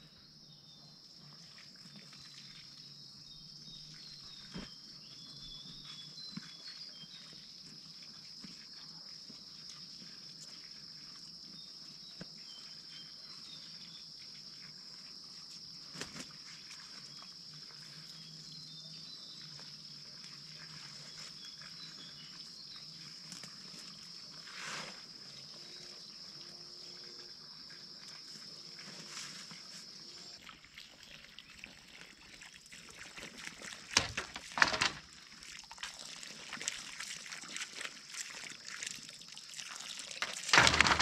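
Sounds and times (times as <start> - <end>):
insects droning: 0.0 - 41.0
brief rustle: 33.9 - 35.1, 40.2 - 41.0.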